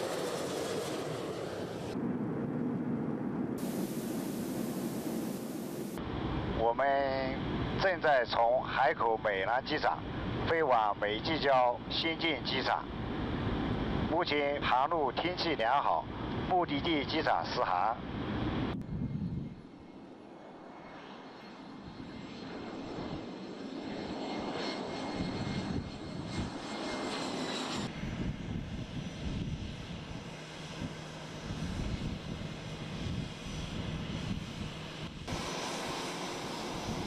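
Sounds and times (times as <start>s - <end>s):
jet engines running: 0.0s - 37.0s.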